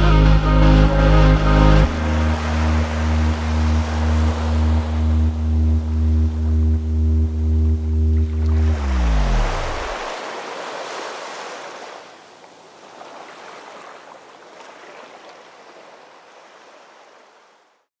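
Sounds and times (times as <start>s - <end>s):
waves washing on beach: 1.9s - 5.7s, 8.4s - 17.8s.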